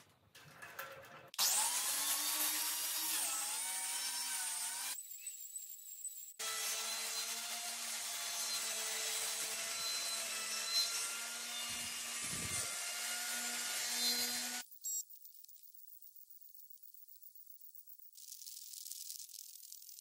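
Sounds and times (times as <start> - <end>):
angle grinder whine: 6.4 - 14.6
grinder disc rasping wood: 6.4 - 14.6.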